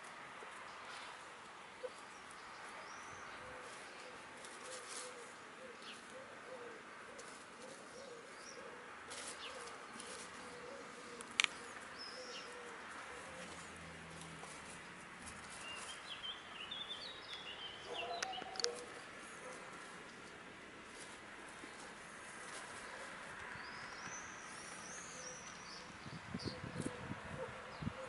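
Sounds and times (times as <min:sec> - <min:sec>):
hens murmuring softly: 0:00.3 - 0:16.0
small birds chirping: 0:01.8 - 0:28.0.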